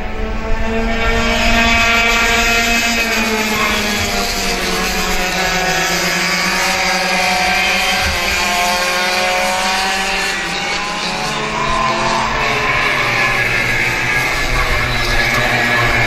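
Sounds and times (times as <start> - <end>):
kart engines revving past: 0.0 - 16.0.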